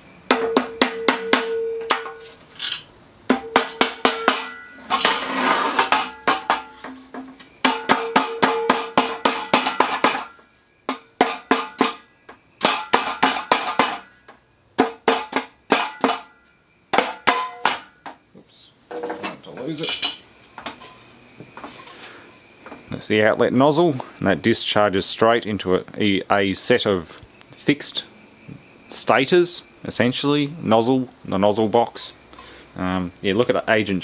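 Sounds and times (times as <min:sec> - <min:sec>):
hammer blows on metal casing: 0:00.3 - 0:02.3, 0:03.3 - 0:05.2, 0:05.8 - 0:18.2
metal casing ringing: 0:00.3 - 0:02.3, 0:03.3 - 0:14.3, 0:15.0 - 0:18.1.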